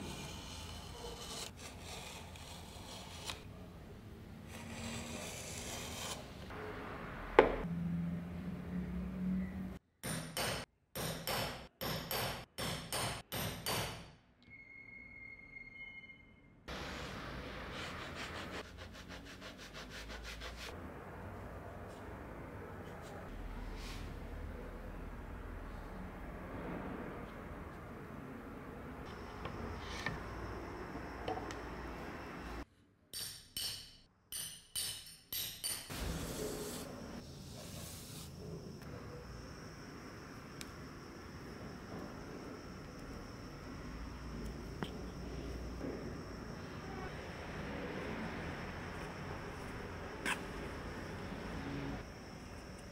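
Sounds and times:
chisel hammered through leather: 10.0s - 14.1s.

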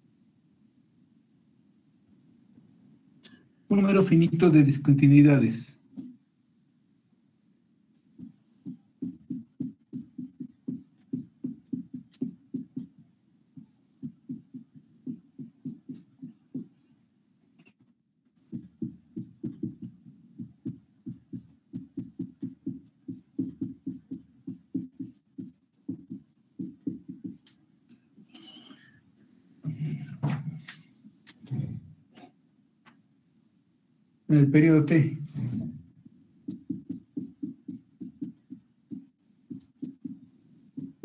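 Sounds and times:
marker squeaking on whiteboard: 8.2s - 13.0s, 18.5s - 27.6s, 28.2s - 29.0s, 36.4s - 40.2s.

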